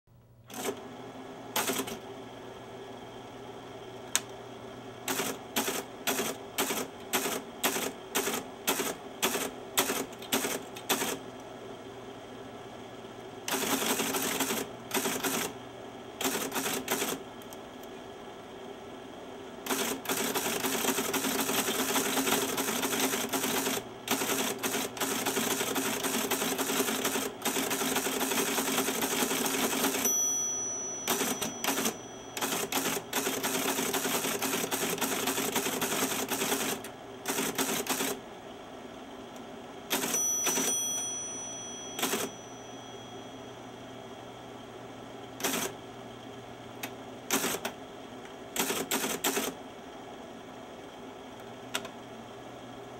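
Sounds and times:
faint steady hum: 0:00.1 - 0:48.8
teletype keystrokes clacking: 0:01.6 - 0:02.0, 0:05.1 - 0:11.2, 0:13.5 - 0:15.5, 0:16.2 - 0:17.6, 0:19.7 - 0:30.3, 0:31.0 - 0:38.2, 0:39.9 - 0:41.1, 0:41.9 - 0:42.4, 0:45.4 - 0:45.7, 0:47.3 - 0:47.8, 0:48.6 - 0:49.6.

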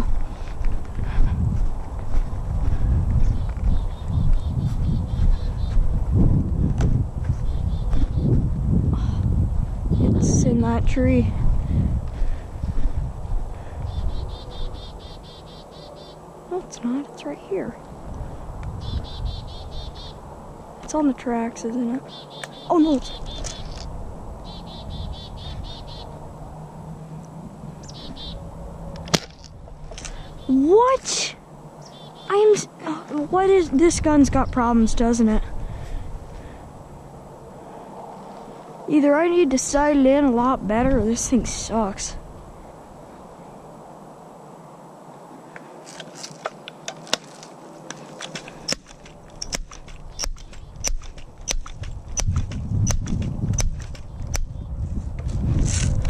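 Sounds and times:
sharp clicking footsteps: 0:00.0 - 0:08.4, 0:23.2 - 0:23.9, 0:45.6 - 0:56.0
low rumble: 0:00.0 - 0:14.7
songbird chirping: 0:01.9 - 0:06.0, 0:07.3 - 0:08.4, 0:13.8 - 0:28.6, 0:29.6 - 0:35.5.

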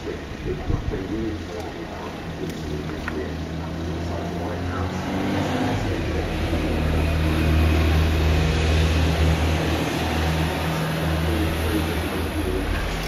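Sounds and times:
television low rumble: 0:00.0 - 0:05.1, 0:05.7 - 0:13.0.

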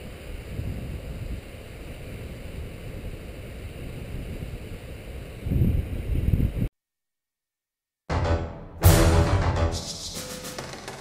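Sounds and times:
wind buffeting microphone: 0:00.2 - 0:06.7.

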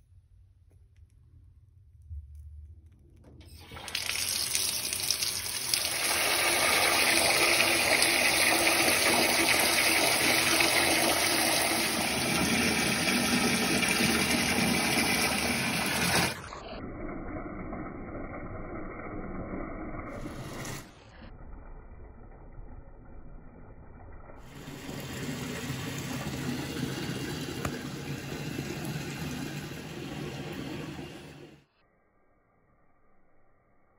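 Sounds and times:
tap water filling bathtub: 0:03.4 - 0:16.6, 0:24.3 - 0:31.6.

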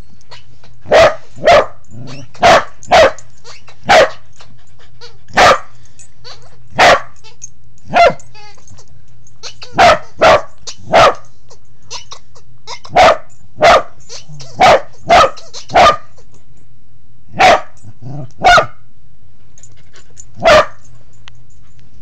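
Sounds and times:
dog barking: 0:00.9 - 0:03.2, 0:03.8 - 0:04.2, 0:05.4 - 0:05.7, 0:06.8 - 0:07.2, 0:07.9 - 0:08.2, 0:09.7 - 0:11.3, 0:12.9 - 0:16.1, 0:17.4 - 0:17.8, 0:18.4 - 0:18.8, 0:20.4 - 0:20.8.

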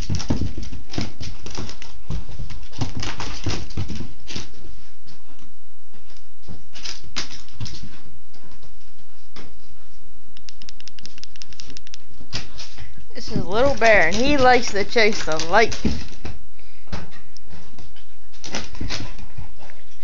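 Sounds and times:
dog claws clicking on wooden floor: 0:00.0 - 0:04.6.

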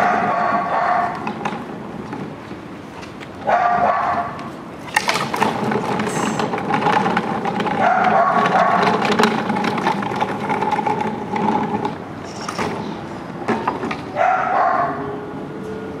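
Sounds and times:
dog barking: 0:00.0 - 0:01.2, 0:03.4 - 0:04.4, 0:07.8 - 0:08.9, 0:14.2 - 0:15.1.

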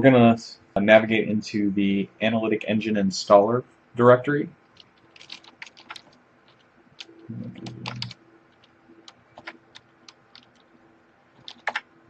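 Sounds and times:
keyboard keys clicking: 0:04.8 - 0:10.7, 0:11.4 - 0:11.9.

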